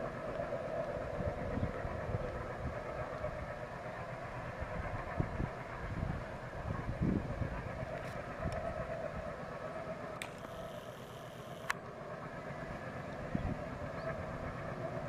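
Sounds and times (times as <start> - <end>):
train wheels rumbling on rail: 0.0 - 11.3, 12.0 - 15.0.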